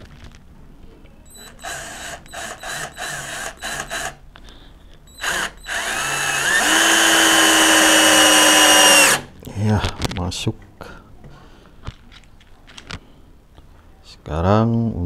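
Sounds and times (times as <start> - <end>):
cordless drill driving screw: 1.3 - 4.2, 5.1 - 9.3.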